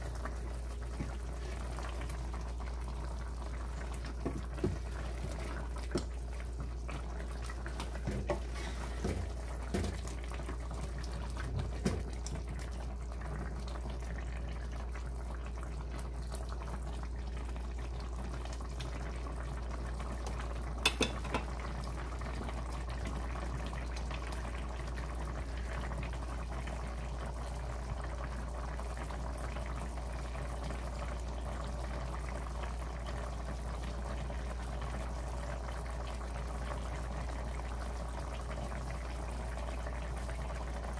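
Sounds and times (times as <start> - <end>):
stew bubbling in a pot: 0.0 - 40.9
ladle knocking against pot: 20.8 - 21.5.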